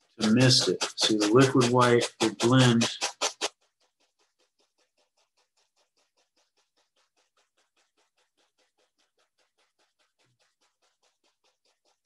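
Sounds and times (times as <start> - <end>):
paintbrush tapping on canvas: 0.2 - 3.6.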